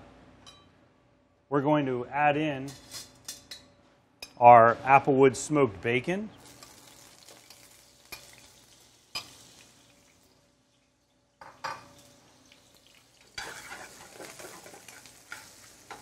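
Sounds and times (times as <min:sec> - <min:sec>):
bacon sizzling in a pan: 0:06.4 - 0:16.0.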